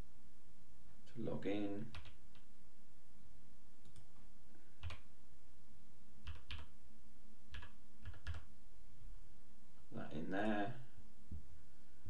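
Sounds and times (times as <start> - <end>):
computer keyboard keystrokes: 1.9 - 2.5, 4.8 - 5.1, 6.2 - 6.7, 7.5 - 8.5.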